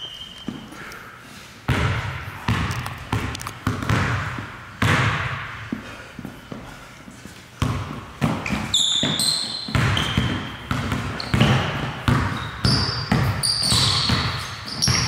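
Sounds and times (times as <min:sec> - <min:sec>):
sneakers squeaking: 0:00.0 - 0:01.0, 0:01.7 - 0:15.0
basketball bouncing on wooden floor: 0:01.7 - 0:05.8, 0:07.6 - 0:15.0.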